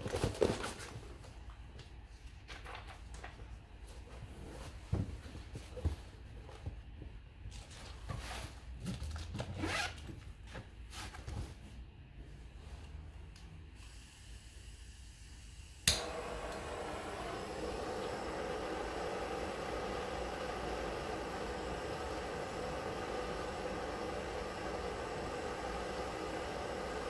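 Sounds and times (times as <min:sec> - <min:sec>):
blowtorch flame hissing: 0:13.8 - 0:27.0
blowtorch lighting click: 0:15.8 - 0:27.0.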